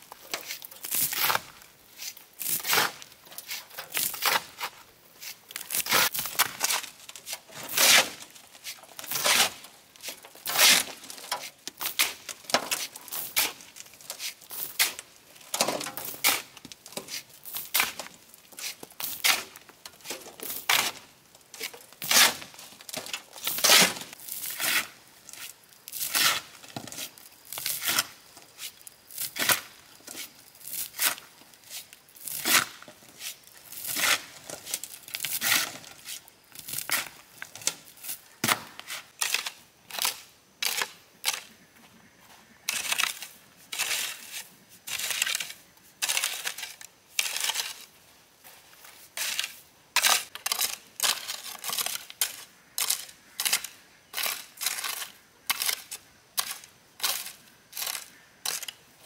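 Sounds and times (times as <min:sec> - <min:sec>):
shovel scraping soil and gravel: 0:00.0 - 0:41.6, 0:42.6 - 0:58.8
hoe chopping loose soil: 0:00.3 - 0:21.1, 0:21.7 - 0:37.1.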